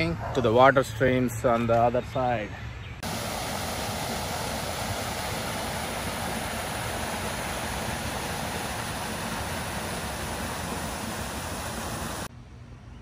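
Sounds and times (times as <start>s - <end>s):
water pouring over weir: 3.0s - 12.3s.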